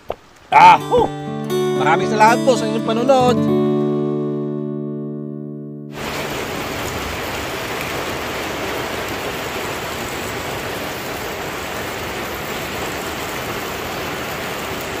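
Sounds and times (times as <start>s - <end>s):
steady rain on plants: 0.0s - 0.9s, 6.0s - 15.0s.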